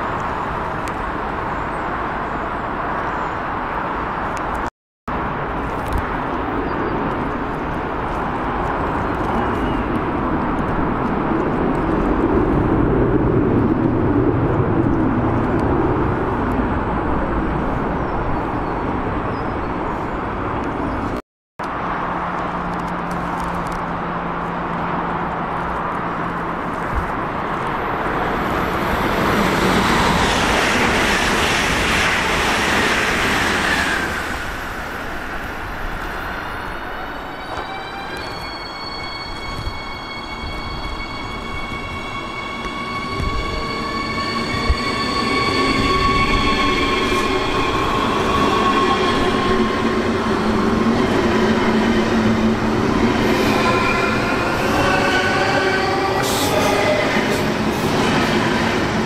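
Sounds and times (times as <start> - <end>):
passing train rush: 0.0 - 59.0
train rolling rumble: 3.6 - 59.0
thin high whines: 37.4 - 57.3.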